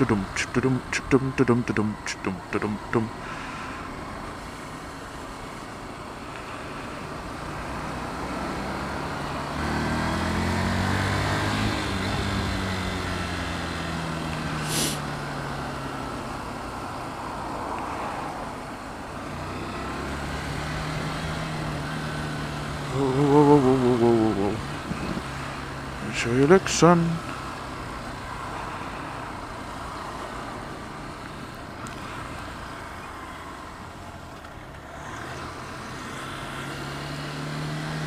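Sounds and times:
motorcycle engine: 0.0 - 17.7, 19.1 - 38.0
wind and road noise: 0.0 - 38.0
brief high hiss: 14.6 - 15.1.

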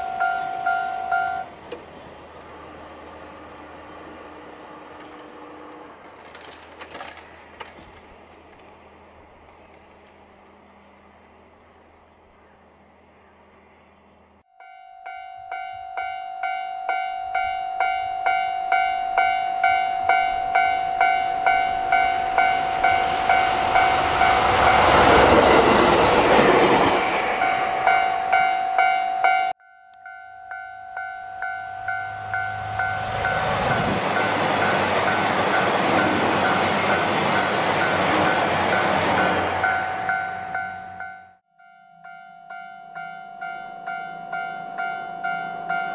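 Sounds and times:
diesel railcar passing: 0.0 - 45.9
diesel train rolling by: 0.0 - 45.9
level crossing electronic bell: 14.5 - 24.4.

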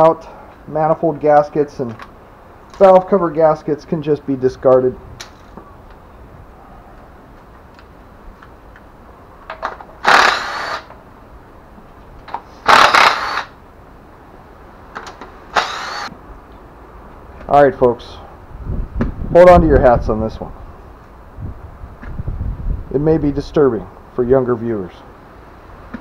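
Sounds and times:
impact tool whining: 9.7 - 11.0, 12.6 - 13.5, 15.5 - 16.1.

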